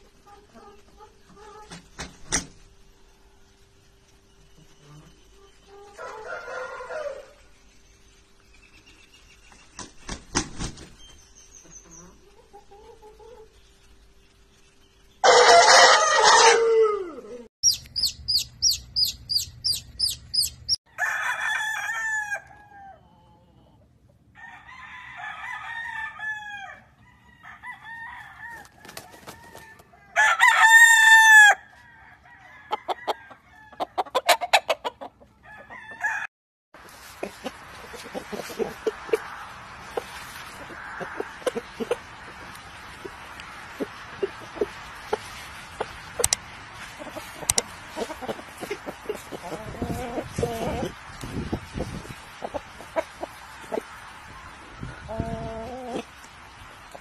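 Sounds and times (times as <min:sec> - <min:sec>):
chicken clucking: 0:00.0 - 0:01.9, 0:11.6 - 0:13.6, 0:15.3 - 0:20.8, 0:33.8 - 0:35.8, 0:36.9 - 0:54.0
roosters crowing: 0:05.8 - 0:07.5, 0:15.2 - 0:23.4, 0:24.3 - 0:36.3, 0:37.2 - 0:46.4, 0:47.0 - 0:51.1, 0:51.8 - 0:56.2
wings flapping: 0:09.7 - 0:11.0, 0:28.7 - 0:29.7.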